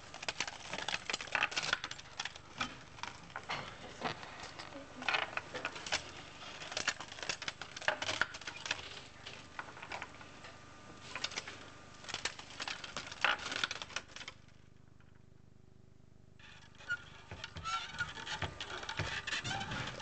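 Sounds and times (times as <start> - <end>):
hand-cranked mechanism clattering: 16.7 - 20.0.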